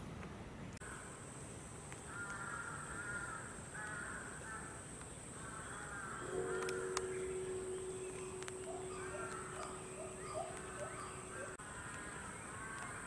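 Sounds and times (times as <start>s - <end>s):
crow cawing: 2.1s - 4.8s, 5.4s - 13.0s
low hum: 6.2s - 11.6s
high-pitched whine: 6.3s - 11.6s.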